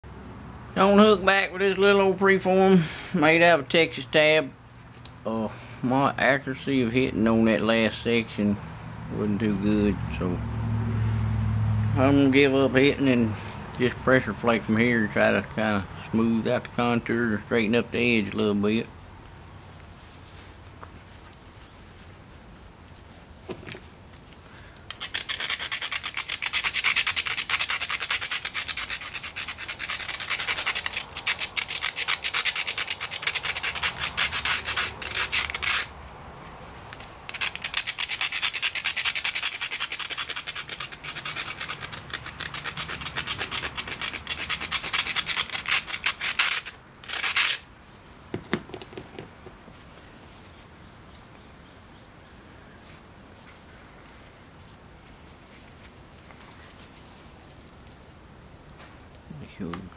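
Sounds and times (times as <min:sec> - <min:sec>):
stone grinding flint edge: 0:23.5 - 0:36.0, 0:36.9 - 0:47.7.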